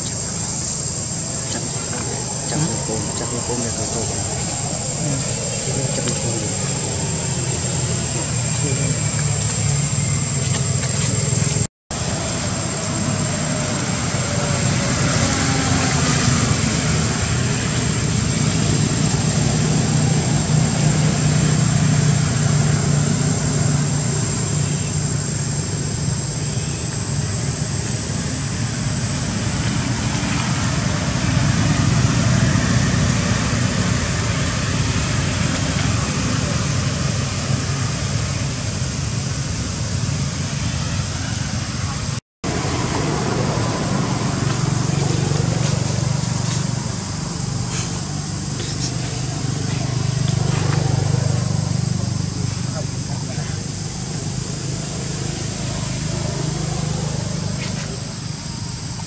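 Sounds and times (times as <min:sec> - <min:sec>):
low drone of distant traffic: 0:00.0 - 0:59.0
thin high steady whine: 0:00.0 - 0:59.0.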